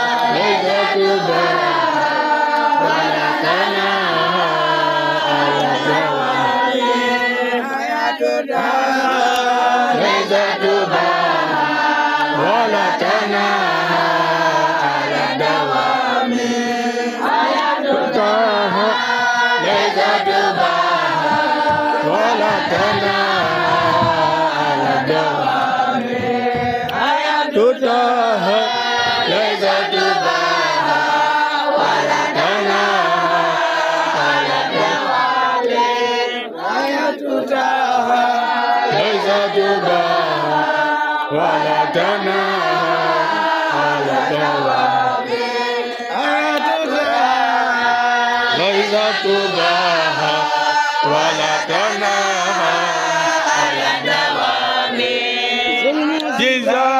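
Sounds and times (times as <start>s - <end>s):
boys chanting in unison: 0.0s - 56.9s.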